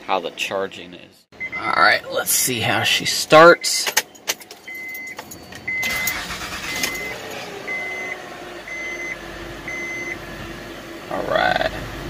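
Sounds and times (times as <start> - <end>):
warning chime beeping: 1.4 - 10.2
car engine cranking and idling: 4.0 - 12.0.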